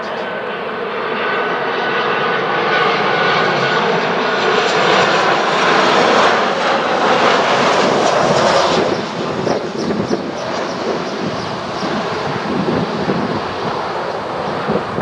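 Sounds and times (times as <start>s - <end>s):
jet engine rumble with whine: 0.0s - 15.0s.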